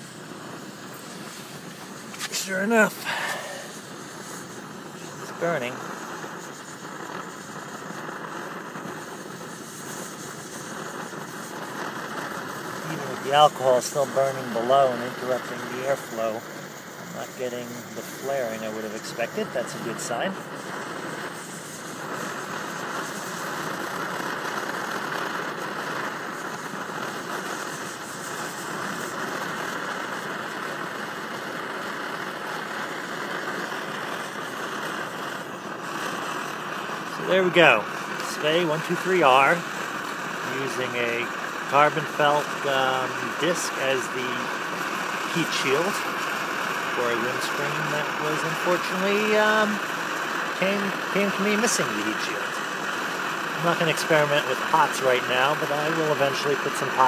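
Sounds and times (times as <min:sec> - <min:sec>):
stove burner roaring: 0:00.0 - 0:57.0.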